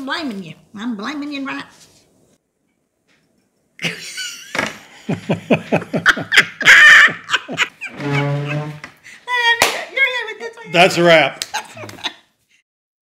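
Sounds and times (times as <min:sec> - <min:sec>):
man laughing: 0:03.8 - 0:08.6, 0:11.0 - 0:12.2
woman laughing: 0:03.8 - 0:08.8, 0:11.4 - 0:12.3.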